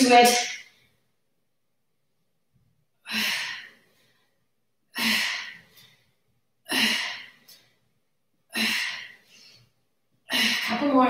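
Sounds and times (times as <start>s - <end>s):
woman breathing out hard: 3.0s - 4.3s.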